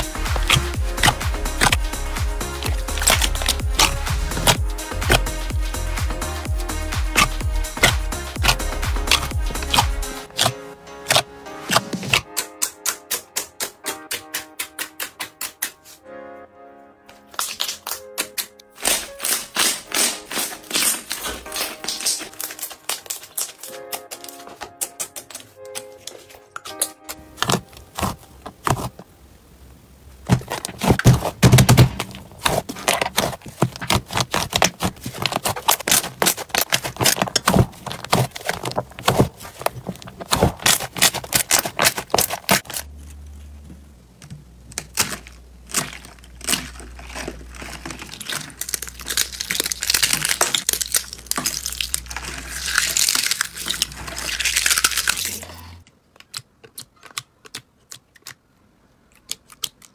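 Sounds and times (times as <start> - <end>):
hands squeezing sticky slime: 0.0 - 10.5, 17.3 - 29.0, 30.3 - 42.8, 44.8 - 55.6
low steady hum: 27.2 - 56.0.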